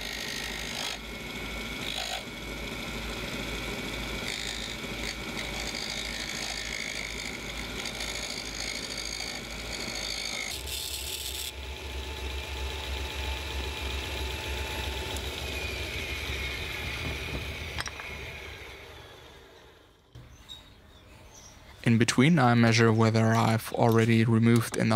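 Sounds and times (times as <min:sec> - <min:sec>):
lathe running: 0:00.0 - 0:20.1
hand tool scraping wood: 0:04.1 - 0:11.5.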